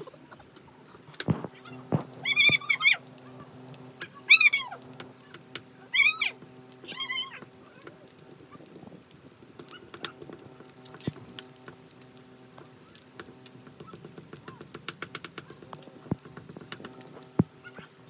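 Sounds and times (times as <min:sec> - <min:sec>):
wood fire crackling: 0:00.0 - 0:18.0.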